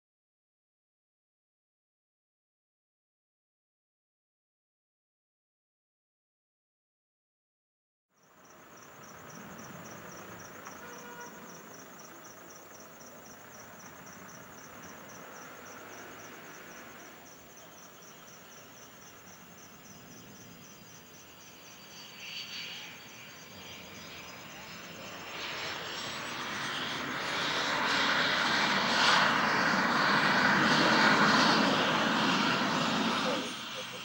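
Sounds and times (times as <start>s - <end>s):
crickets chirping: 8.2s - 34.0s
jet engine whine: 8.3s - 34.0s.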